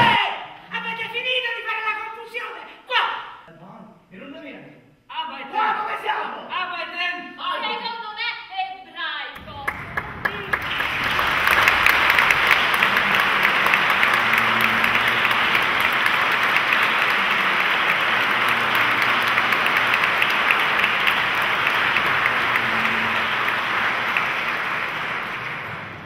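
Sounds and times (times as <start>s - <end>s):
audience applauding: 9.4s - 26.0s.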